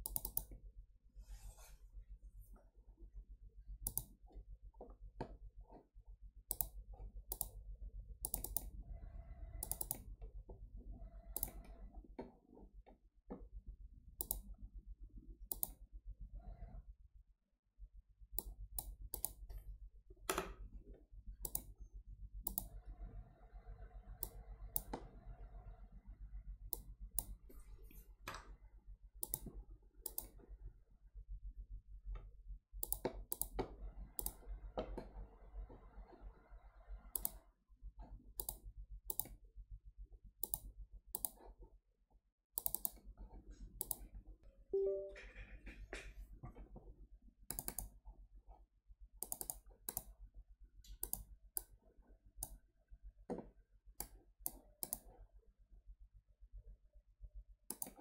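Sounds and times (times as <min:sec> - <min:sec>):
keyboard keystrokes: 0:00.0 - 0:00.5, 0:09.6 - 0:10.1
computer mouse clicks: 0:00.0 - 0:00.6, 0:03.8 - 0:05.8, 0:06.5 - 0:07.6, 0:08.2 - 0:10.3, 0:11.0 - 0:12.4, 0:14.2 - 0:14.6, 0:15.5 - 0:15.8, 0:18.4 - 0:19.6, 0:21.4 - 0:21.8, 0:22.4 - 0:22.8, 0:24.1 - 0:25.2, 0:26.7 - 0:27.6, 0:29.2 - 0:30.5, 0:32.2 - 0:36.3, 0:37.1 - 0:37.4, 0:38.0 - 0:39.4, 0:40.4 - 0:41.6, 0:42.6 - 0:44.2, 0:47.5 - 0:48.0, 0:49.2 - 0:50.2, 0:50.8 - 0:51.8, 0:52.4 - 0:52.6, 0:54.0 - 0:55.2, 0:57.7 - 0:58.0.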